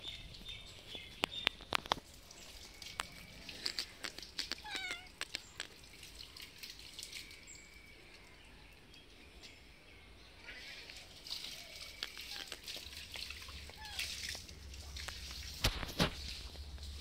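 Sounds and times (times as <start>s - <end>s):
light clicks and taps: 2.9s - 5.8s
cat meowing: 4.5s - 5.2s, 13.8s - 14.1s.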